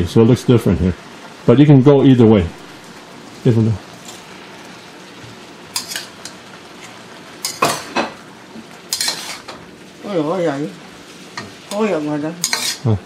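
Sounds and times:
frying hiss: 0:00.0 - 0:13.0
ladle clanking against wok: 0:05.7 - 0:06.4, 0:07.4 - 0:08.2, 0:08.9 - 0:09.6, 0:12.4 - 0:12.9.

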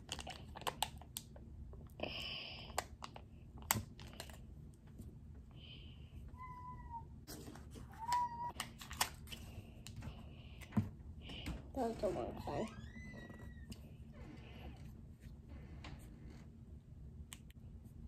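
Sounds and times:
cat meowing: 0:06.4 - 0:07.1, 0:07.9 - 0:08.6.

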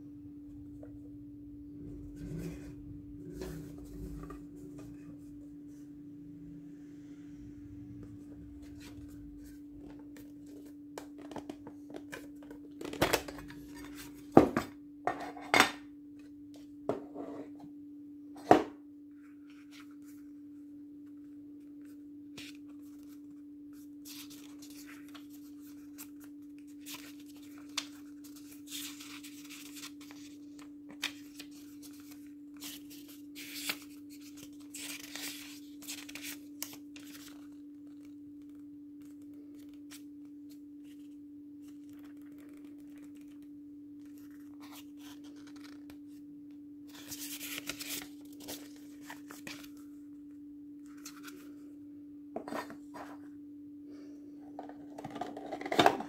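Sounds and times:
steady low hum: 0:00.0 - 0:15.2, 0:15.8 - 0:56.0
paper rustling and crinkling: 0:22.3 - 0:43.4, 0:44.0 - 0:46.0, 0:46.9 - 0:49.9.

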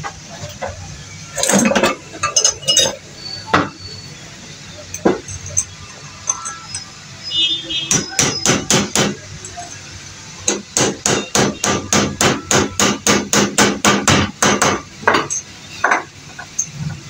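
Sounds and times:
hammer striking metal pipe: 0:07.9 - 0:09.2, 0:10.5 - 0:16.7.

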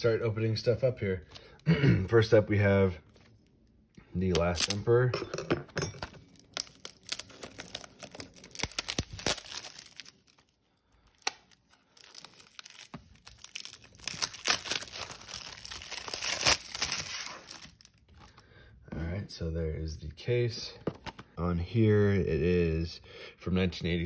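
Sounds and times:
plastic wrap crinkling and tearing: 0:04.2 - 0:05.0, 0:06.2 - 0:18.4.

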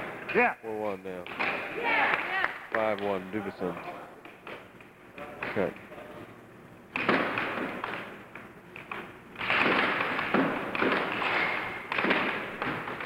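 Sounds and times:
air hockey puck clacking: 0:06.9 - 0:13.0.

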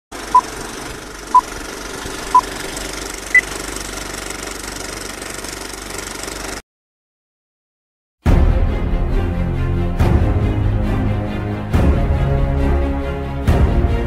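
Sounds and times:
film projector clatter: 0:00.2 - 0:06.6.

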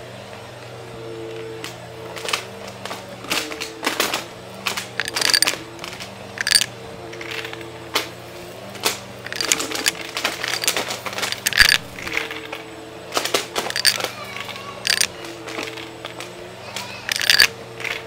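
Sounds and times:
coins clinking through vacuum: 0:04.9 - 0:07.7, 0:09.2 - 0:12.7, 0:13.6 - 0:14.1, 0:14.8 - 0:16.3, 0:17.0 - 0:18.0.

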